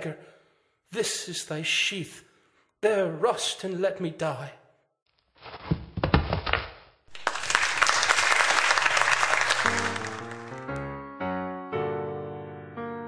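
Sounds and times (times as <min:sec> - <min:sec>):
audience applauding: 0:07.1 - 0:10.9
piano music: 0:07.2 - 0:13.0.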